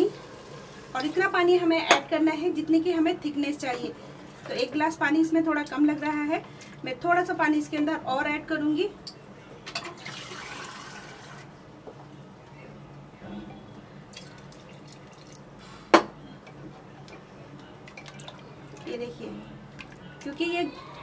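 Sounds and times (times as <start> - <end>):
water pouring into a pot: 10.0 - 11.5, 17.9 - 19.0.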